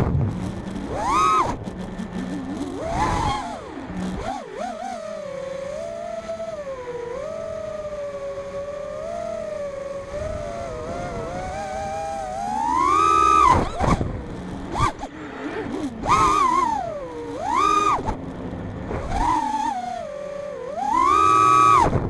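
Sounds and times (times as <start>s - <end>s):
drone motors and propellers whining: 0.0s - 22.0s.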